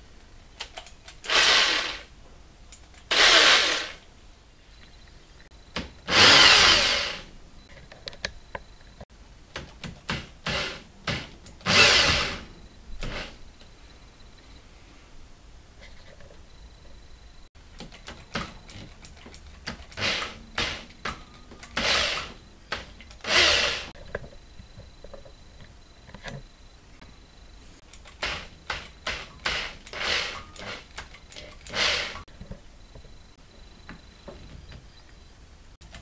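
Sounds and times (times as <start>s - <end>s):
power drill short bursts: 1.2s - 2.1s, 3.1s - 4.0s, 6.1s - 7.3s, 10.5s - 12.4s, 20.0s - 20.9s, 21.8s - 22.3s, 23.2s - 23.9s, 29.1s - 30.9s, 31.6s - 32.2s.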